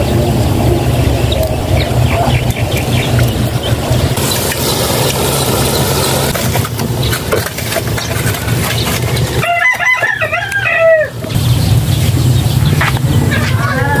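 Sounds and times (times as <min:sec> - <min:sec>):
rooster crowing: 0:09.4 - 0:11.2, 0:13.3 - 0:14.0.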